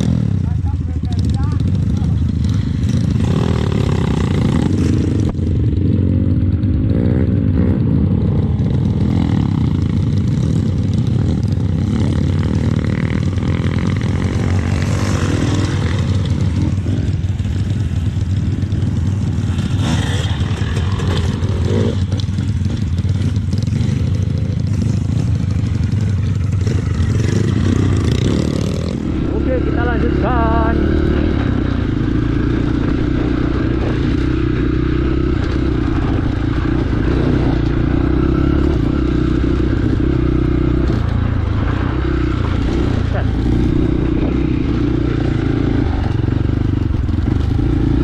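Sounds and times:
motorcycle engine revving: 0.0 - 48.0.

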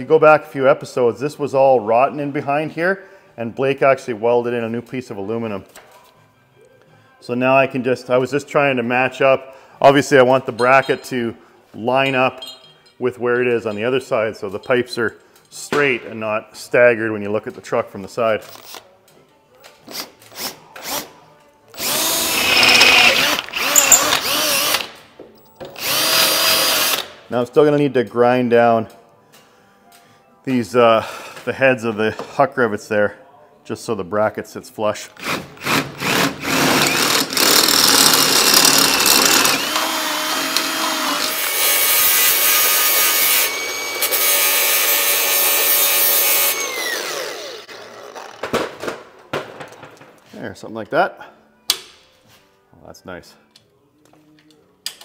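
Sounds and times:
grinder winding down: 21.8 - 24.8, 36.5 - 48.3
power drill boring through metal: 21.8 - 24.9, 25.8 - 27.1, 35.2 - 48.4.

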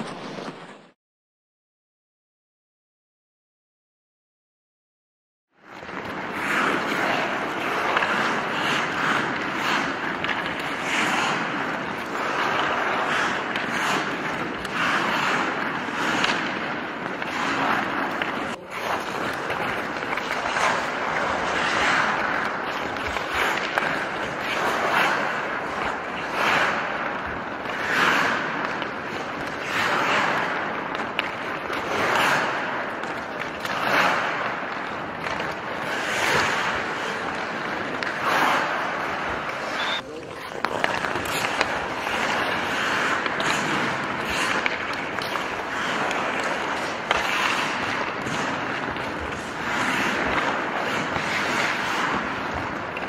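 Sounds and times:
skate blades scraping ice: 0.0 - 1.0, 5.6 - 53.0.

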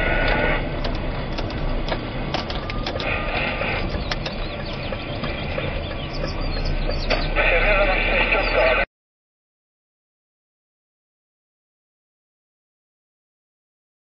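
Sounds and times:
car engine and tyre rumble: 0.0 - 8.8.

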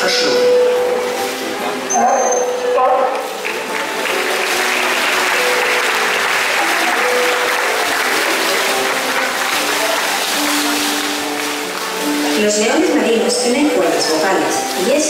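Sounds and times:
background music: 0.0 - 15.0
crowd clapping: 3.1 - 13.0.

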